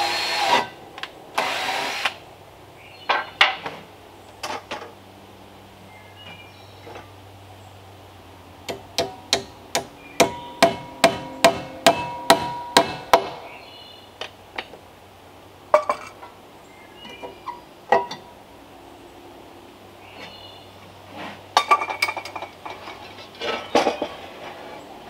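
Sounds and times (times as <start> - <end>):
hammer driving a nail: 8.7 - 13.4.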